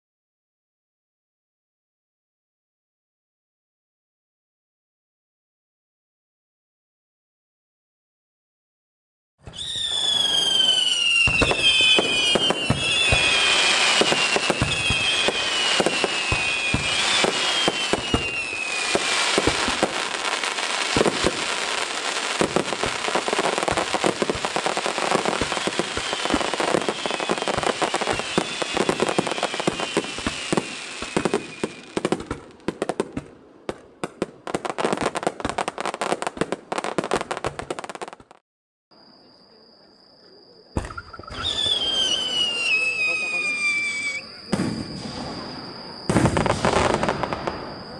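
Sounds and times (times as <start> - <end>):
fireworks crackling and popping: 9.4 - 38.4, 40.8 - 47.9
whistling firework shells: 9.4 - 38.4, 40.2 - 47.9.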